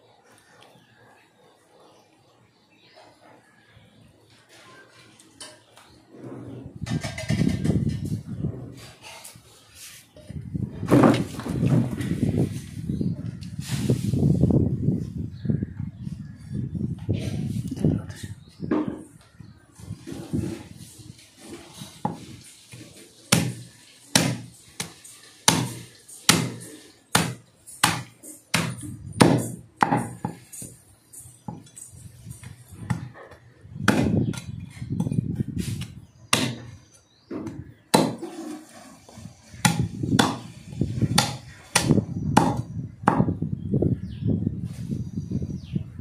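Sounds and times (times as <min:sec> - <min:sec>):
cleaver chopping meat: 0:23.3 - 0:30.4, 0:33.8 - 0:35.1, 0:36.3 - 0:36.7, 0:37.9 - 0:38.2, 0:39.6 - 0:40.5, 0:41.1 - 0:43.3.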